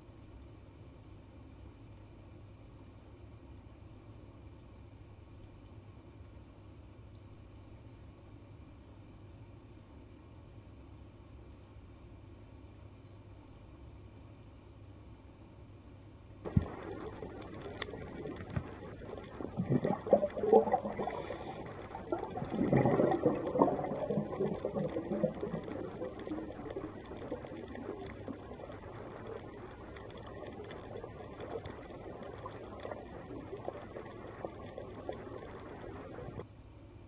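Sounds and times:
underwater water hiss: 16.5s - 36.4s
water bubbling and gurgling: 16.5s - 36.4s.

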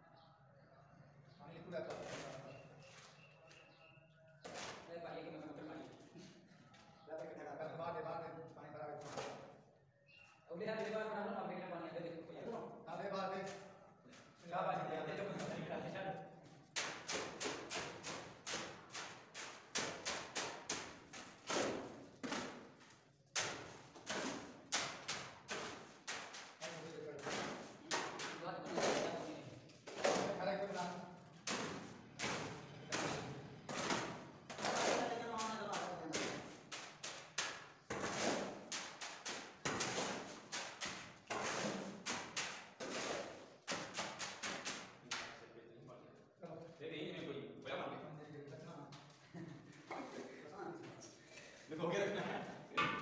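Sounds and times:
shovel scraping wet cement: 16.8s - 22.7s, 23.4s - 30.4s, 31.4s - 44.9s.

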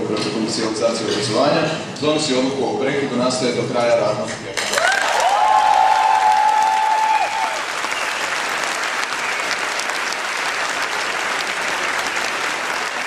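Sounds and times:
crowd applauding: 4.6s - 13.0s.

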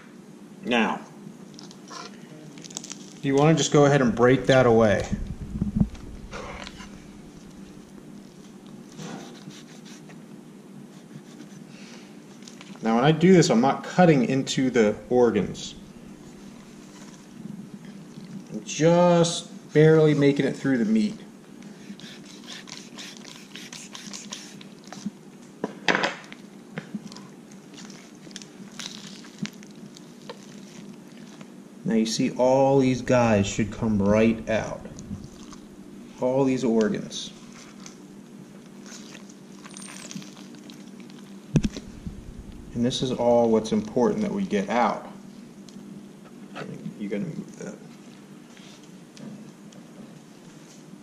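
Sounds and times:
low steady hum: 0.0s - 24.0s, 26.4s - 51.0s
wet squelching and scraping: 4.5s - 10.0s, 32.8s - 35.9s.

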